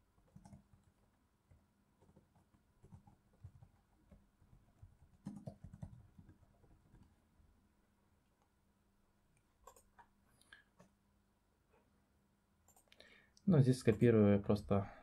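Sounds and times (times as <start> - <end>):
soft keyboard typing: 0.2 - 7.2, 9.6 - 11.0, 12.6 - 13.0, 13.7 - 14.2.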